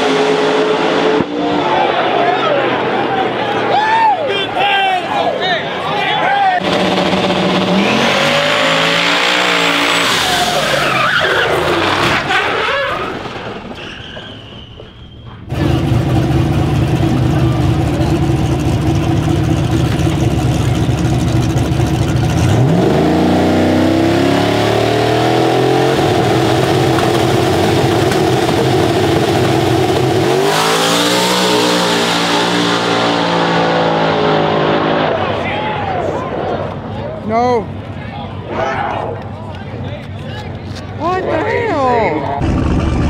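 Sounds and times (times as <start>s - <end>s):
truck engine revving: 0.0s - 3.7s, 6.6s - 13.8s, 15.5s - 36.8s, 42.3s - 43.0s
drag car engine lumpy idle: 15.5s - 22.5s, 26.0s - 30.3s.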